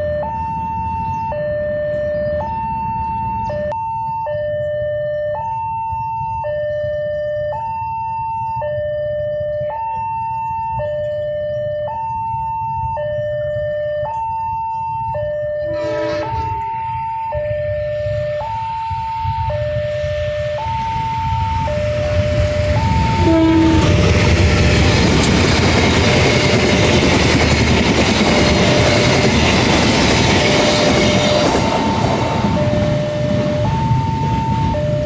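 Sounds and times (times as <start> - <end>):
two-tone level crossing alarm: 0.0 - 35.0
low rumble: 16.3 - 35.0.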